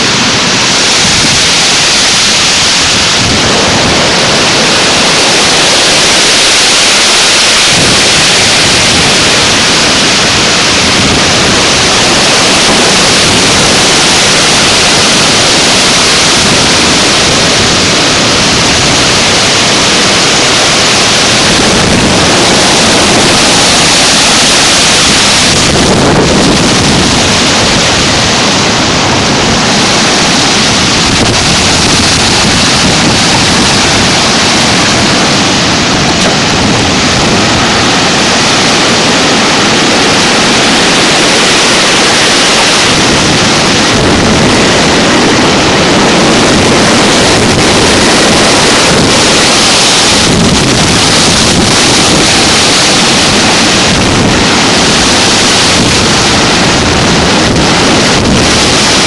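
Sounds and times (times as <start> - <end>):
wind blowing across microphone: 0.0 - 59.0.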